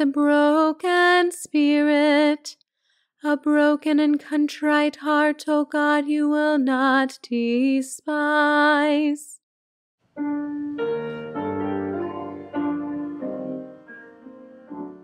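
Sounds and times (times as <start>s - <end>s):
piano chords: 10.2s - 15.0s.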